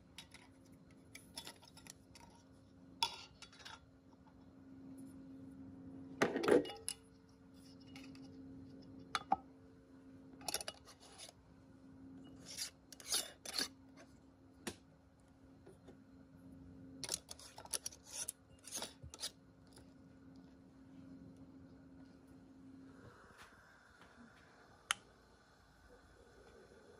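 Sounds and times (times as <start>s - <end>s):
steady low hum: 0.0s - 26.9s
metal lids clinking on glass jars: 6.2s - 7.0s, 10.4s - 11.3s
screw bands scraping on jar threads: 17.0s - 19.4s.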